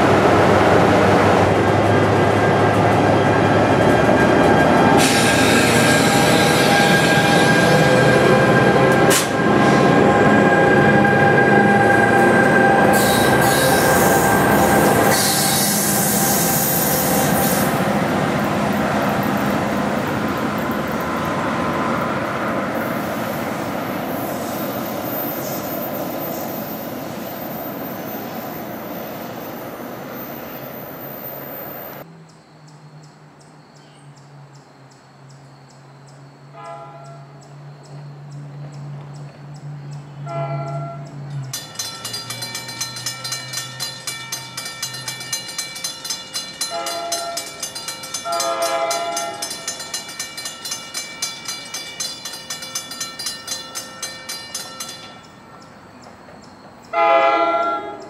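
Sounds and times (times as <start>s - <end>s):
train passing: 0.0s - 32.3s, 35.2s - 58.0s
metallic wheel squeal: 2.0s - 18.0s.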